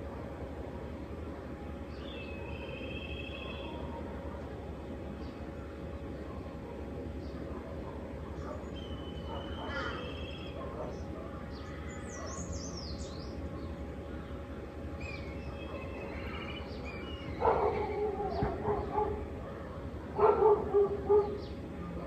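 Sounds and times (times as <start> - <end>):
birds chirping and whistling: 1.9 - 3.9, 8.4 - 14.4, 15.0 - 19.2
dog barking: 7.5 - 11.3, 17.4 - 19.4, 20.1 - 22.0.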